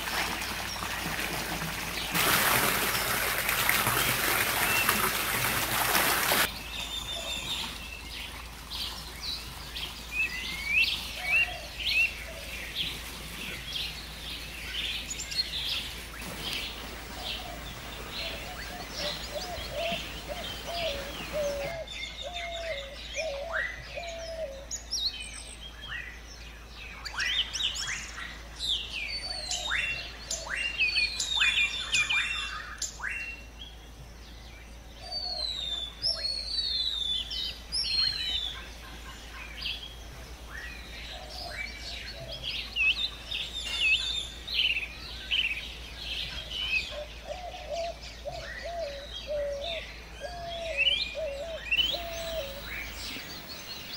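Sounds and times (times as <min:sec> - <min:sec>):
fountain water splashing: 0:00.0 - 0:12.0, 0:15.4 - 0:21.7, 0:51.8 - 0:53.9
birds chirping and singing: 0:06.4 - 0:53.9
low repeated bird call: 0:16.2 - 0:24.7, 0:35.0 - 0:53.9.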